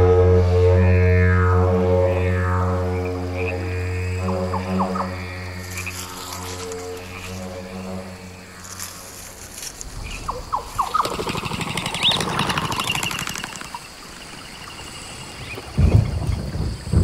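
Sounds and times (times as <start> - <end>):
low rumbling bursts: 0.0 - 12.8
birds chirping: 2.9 - 17.0.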